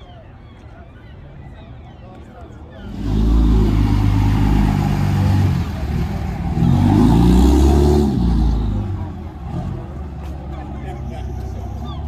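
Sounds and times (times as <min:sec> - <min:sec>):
pickup truck engine revving: 0:02.9 - 0:10.7.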